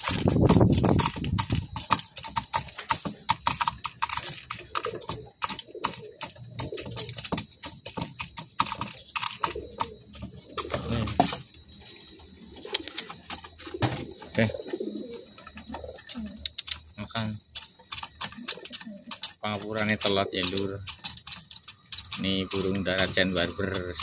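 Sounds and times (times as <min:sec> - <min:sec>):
beak tapping on tin: 0:00.0 - 0:10.0.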